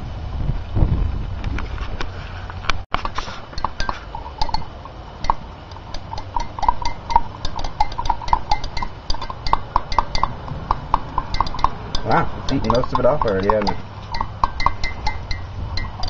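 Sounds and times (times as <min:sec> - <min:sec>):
metal rod clinking against glass: 0:03.5 - 0:16.0.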